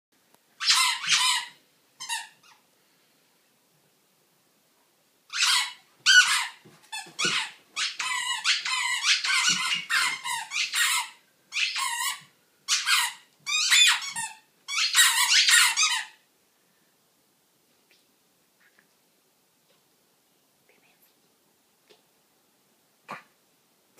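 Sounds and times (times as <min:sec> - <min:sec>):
squeaky dog toy squeaking: 0:00.6 - 0:02.6, 0:05.3 - 0:16.2.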